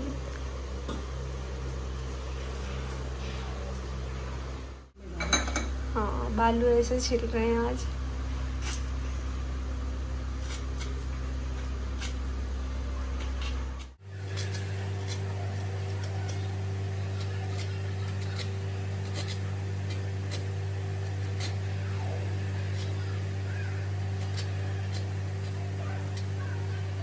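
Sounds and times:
low machine hum: 0.0 - 27.0.

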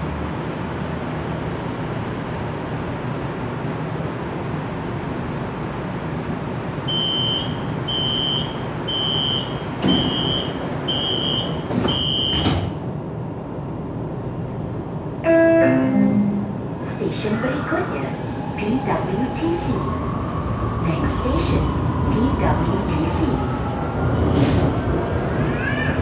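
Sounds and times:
train humming at rest: 0.0 - 26.0
high-pitched warning beeps: 6.9 - 12.5
sliding doors closing thud: 9.8 - 10.5, 11.6 - 12.9, 24.1 - 25.0.

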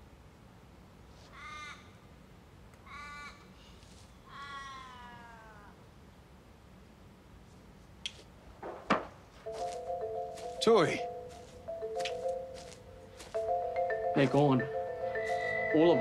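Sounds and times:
crow cawing: 1.3 - 2.0, 2.8 - 3.5, 4.3 - 5.7, 15.1 - 16.0.

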